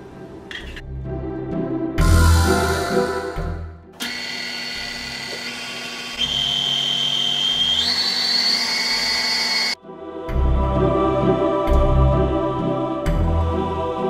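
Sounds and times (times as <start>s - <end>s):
electric stand mixer motor whine: 4.0s - 9.8s.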